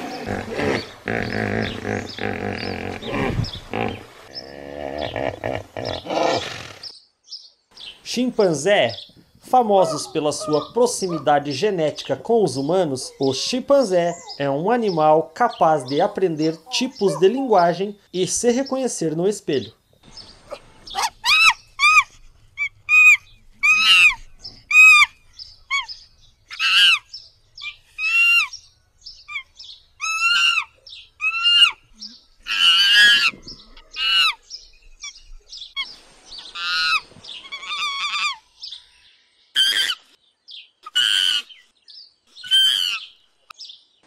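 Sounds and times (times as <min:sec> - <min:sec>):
chimpanzees calling: 0:00.0 - 0:06.8, 0:09.6 - 0:11.6, 0:12.6 - 0:17.9, 0:20.4 - 0:28.6, 0:29.2 - 0:34.4, 0:35.0 - 0:38.5, 0:39.6 - 0:40.2, 0:40.8 - 0:41.6, 0:42.4 - 0:43.2.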